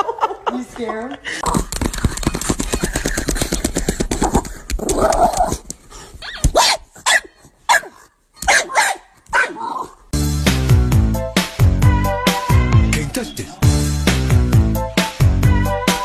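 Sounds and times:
dog barking and yipping: 6.2 - 10.0
music: 10.2 - 16.0.

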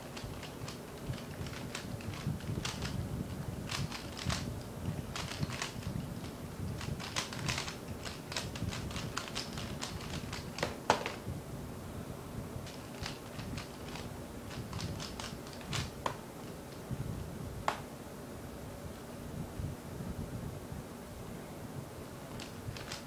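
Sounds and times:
puzzle cube turning clicks: 0.0 - 11.2, 12.6 - 16.8, 22.3 - 23.0.

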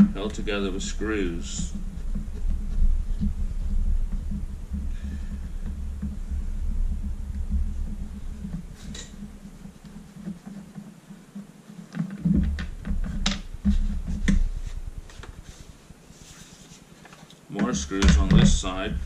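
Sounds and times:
low hum: 0.0 - 16.9, 17.7 - 19.0
plastic parts knocking: 11.9 - 15.5, 17.1 - 18.8.

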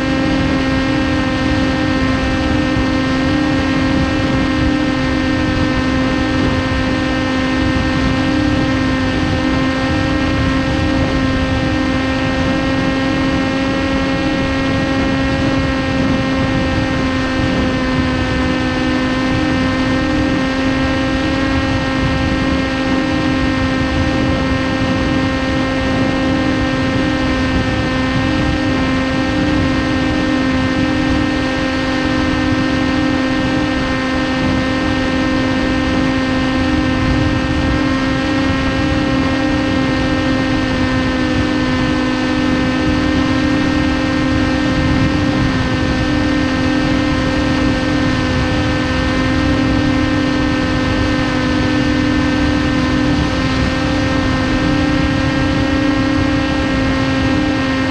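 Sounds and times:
electric motor whine: 0.0 - 57.9
rush of air: 36.8 - 57.9.

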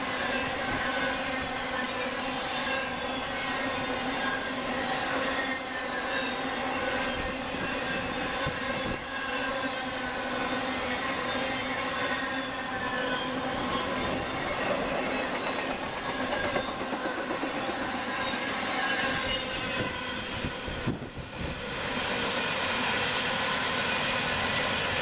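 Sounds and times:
wheels squealing: 1.9 - 20.7
freight train rumbling clatter: 7.0 - 21.6.

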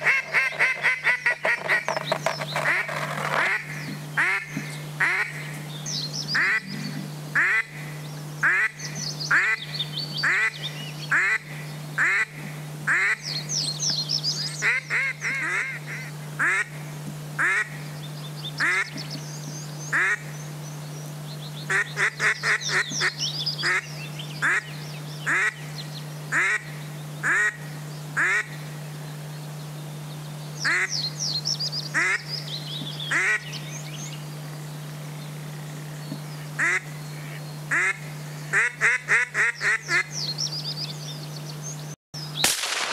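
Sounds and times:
duck quacking: 0.0 - 5.4, 6.4 - 6.8, 7.4 - 7.8, 10.2 - 13.2, 14.6 - 16.8, 17.4 - 17.8, 18.6 - 19.0, 21.7 - 24.7, 25.3 - 25.6, 26.3 - 27.6, 28.2 - 28.6, 32.0 - 32.2, 33.1 - 33.5, 36.6 - 40.1
high chirping bird calls: 0.0 - 7.0
steady low hum: 0.0 - 42.9.

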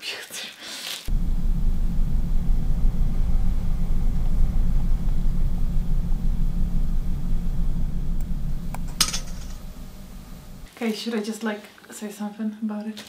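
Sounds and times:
deep droning hum: 1.1 - 10.7
loud low rumble: 1.1 - 10.7.

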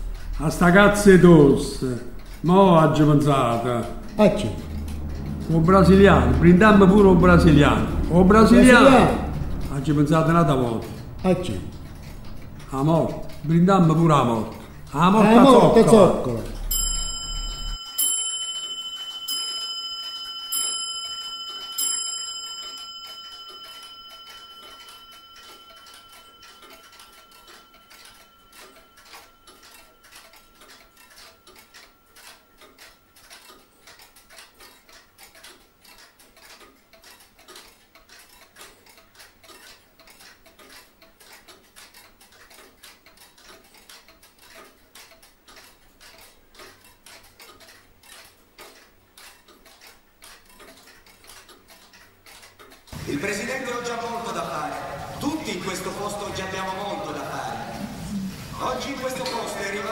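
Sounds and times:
faint clock ticking: 0.0 - 59.9
bell striking: 15.7 - 30.0.

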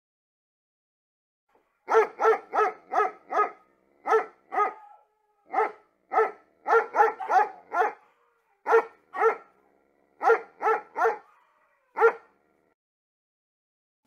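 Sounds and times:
dog barking: 1.7 - 12.4.

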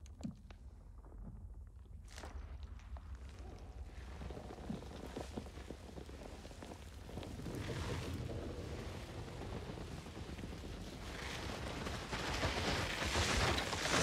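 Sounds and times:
rushing wind with low rumble: 2.9 - 14.0.

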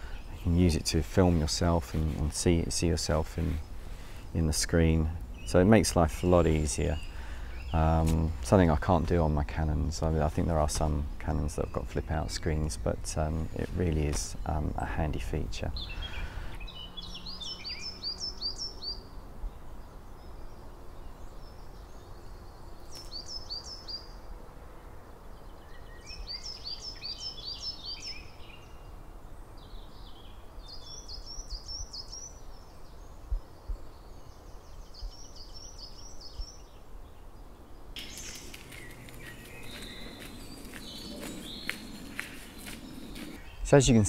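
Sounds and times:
birds singing: 0.0 - 44.0
footsteps on gravel: 38.0 - 43.4.

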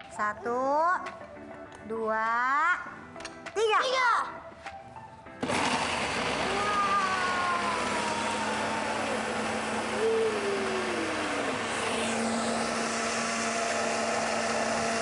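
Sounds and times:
electric food chopper grinding: 5.4 - 15.0.

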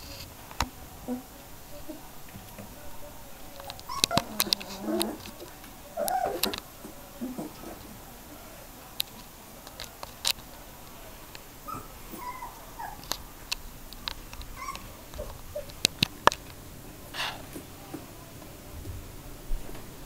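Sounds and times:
puppies squeaking and whimpering: 3.6 - 6.6, 11.6 - 13.2, 14.4 - 15.8.

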